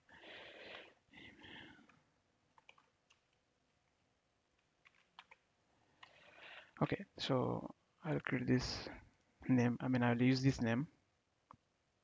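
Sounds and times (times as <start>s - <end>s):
computer keyboard keystrokes: 2.5s - 3.4s, 4.6s - 6.2s.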